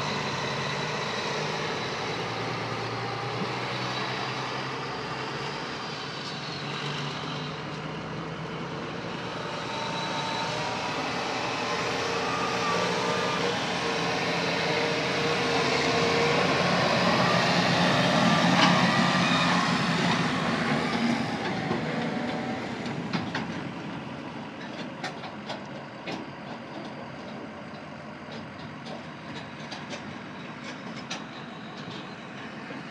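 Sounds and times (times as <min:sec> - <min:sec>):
tractor diesel engine driving by: 0:00.0 - 0:32.9
truck rolling past: 0:00.0 - 0:32.9.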